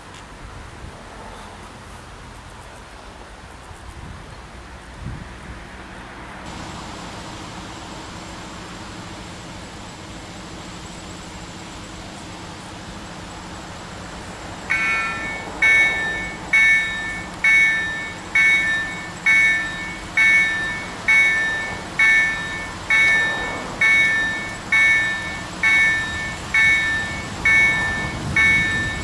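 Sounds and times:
level crossing warning bell: 10.0s - 29.0s.

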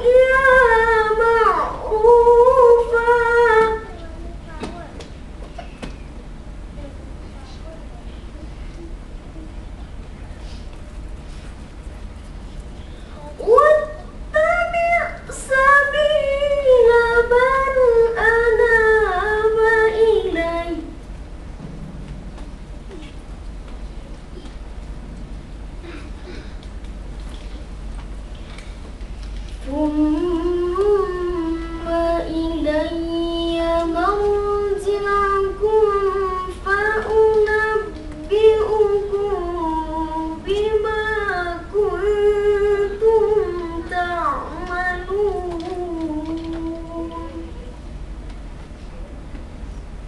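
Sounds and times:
boy chanting melodically: 0.0s - 5.0s, 13.0s - 21.0s, 29.6s - 47.8s.

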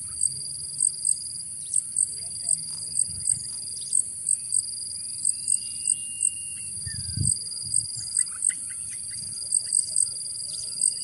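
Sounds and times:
insects trilling: 0.0s - 11.0s
bird whistling: 5.3s - 7.3s.

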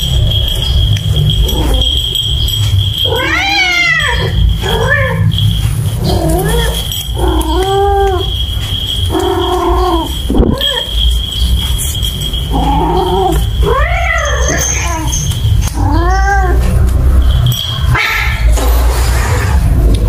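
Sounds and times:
cat yowling: 3.0s - 5.4s, 6.0s - 8.4s, 9.0s - 11.1s, 12.4s - 16.9s.

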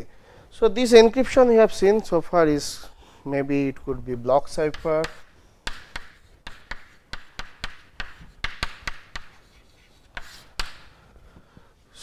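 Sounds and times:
chalk tapping and scratching: 4.5s - 11.0s.

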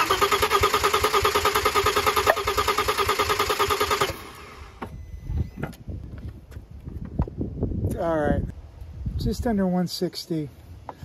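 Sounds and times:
starter motor cranking: 0.0s - 4.8s.

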